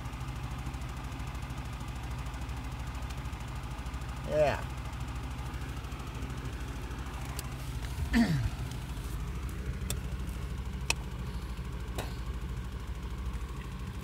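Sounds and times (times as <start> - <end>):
man sighing: 8.0 - 8.7.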